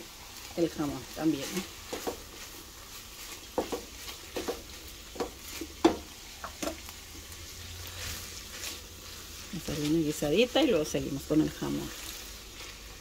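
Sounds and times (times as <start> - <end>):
meat sizzling: 0.0 - 13.0
spoon scraping frying pan: 1.5 - 10.8.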